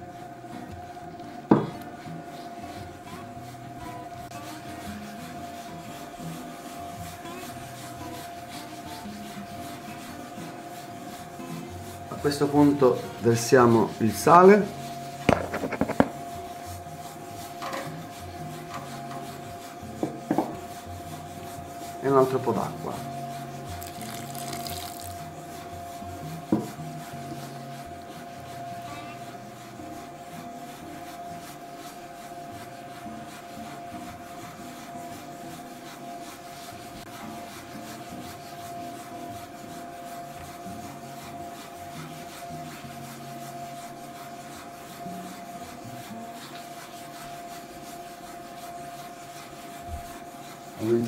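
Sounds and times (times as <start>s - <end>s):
dough hook kneading in steel bowl: 23.6s - 27.1s.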